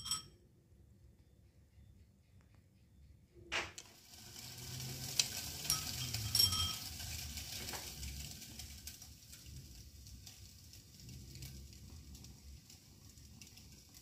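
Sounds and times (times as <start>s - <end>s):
sharp metal clinks: 0.0s - 0.4s, 5.7s - 6.9s
water rushing through colander: 3.8s - 14.0s.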